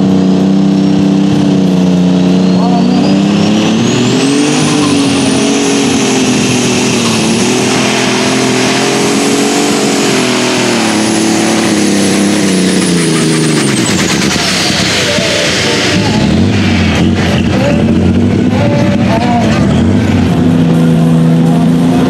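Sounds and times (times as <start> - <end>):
diesel tractor engine under load: 0.0 - 22.0
high turbo whine: 0.0 - 22.0.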